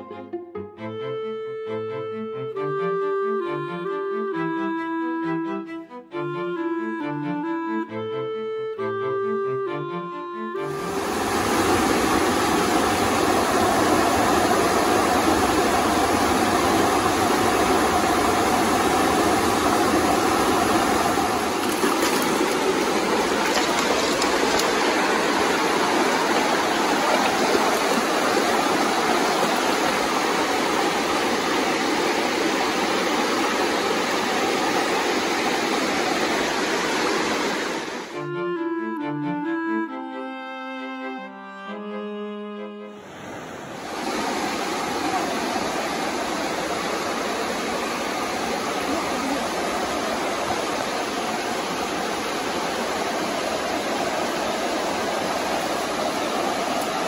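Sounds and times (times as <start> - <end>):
river rushing over rocks: 10.8 - 38.1, 43.1 - 57.0.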